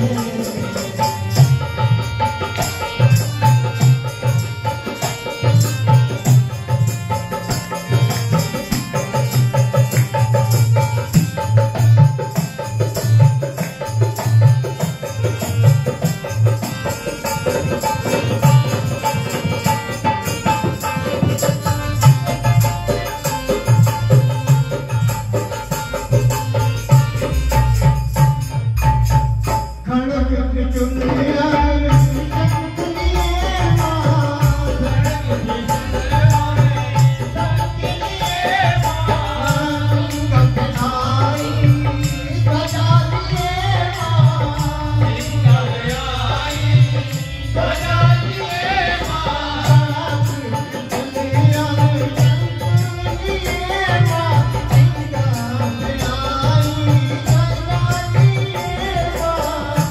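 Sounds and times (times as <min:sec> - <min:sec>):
hand drum beat: 0:00.0 - 0:29.6
man singing into a microphone: 0:00.0 - 0:59.9.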